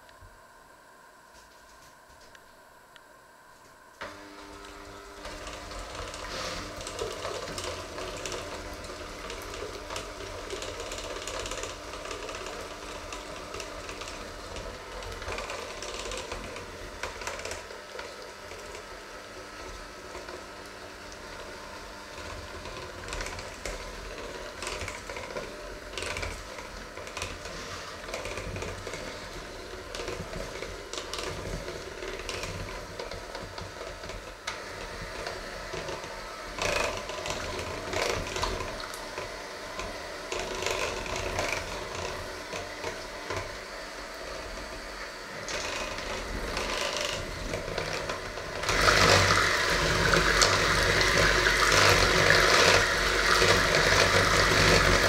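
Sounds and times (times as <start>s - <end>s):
electric hand mixer running: 4.0s - 55.0s.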